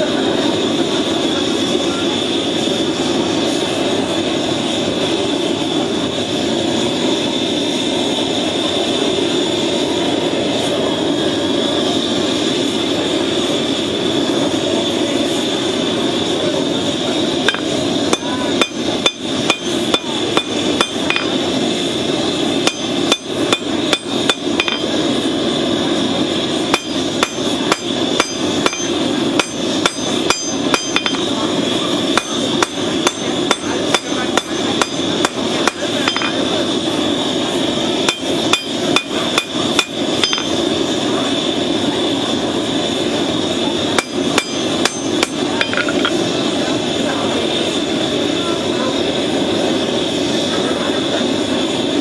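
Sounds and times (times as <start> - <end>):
forge fire roaring: 0.0 - 52.0
hammer striking hot steel on anvil: 17.4 - 21.5, 22.6 - 25.1, 26.6 - 36.6, 37.9 - 40.7, 43.9 - 46.2.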